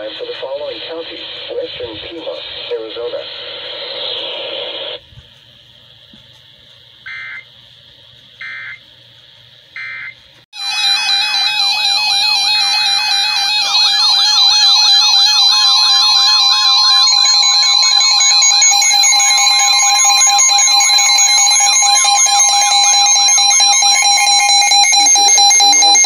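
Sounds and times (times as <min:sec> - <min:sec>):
broadcast voice: 0:00.0 - 0:03.6
steady warning alarm tone: 0:07.0 - 0:07.5, 0:08.4 - 0:08.8, 0:09.8 - 0:26.0
high beeping tones: 0:09.8 - 0:26.0
warbling alarm siren: 0:09.8 - 0:26.0.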